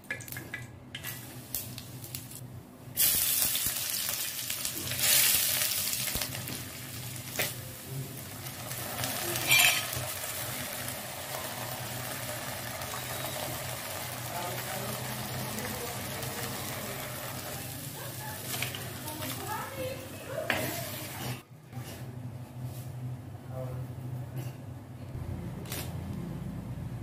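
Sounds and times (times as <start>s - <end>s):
onions sizzling in hot oil: 0.2s - 21.4s
stirring scrapes in pot: 9.3s - 10.0s, 20.3s - 22.1s.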